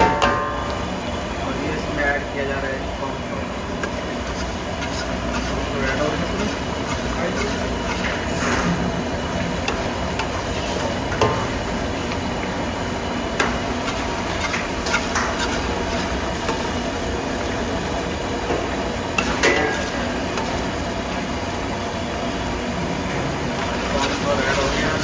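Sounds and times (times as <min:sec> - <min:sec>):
sauce bubbling and sizzling: 0:00.6 - 0:25.0
spoon stirring food in a wok: 0:03.7 - 0:17.8, 0:18.4 - 0:21.4.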